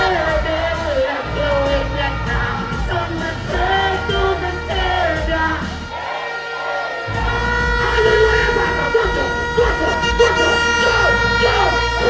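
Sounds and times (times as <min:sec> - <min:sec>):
person chanting and singing into microphone: 0:00.0 - 0:05.9
dancehall beat with heavy bass: 0:00.0 - 0:12.0.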